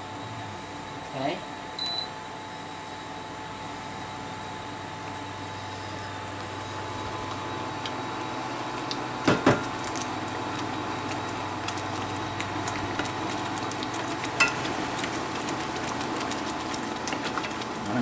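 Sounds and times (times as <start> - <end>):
faint steady whine: 0.0 - 18.0
wooden spoon stirring sauce: 11.7 - 17.9.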